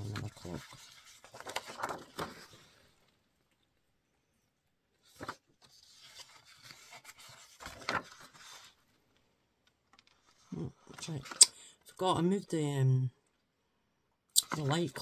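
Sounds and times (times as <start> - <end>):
paper rustling and sliding: 0.0 - 3.1, 5.0 - 9.0.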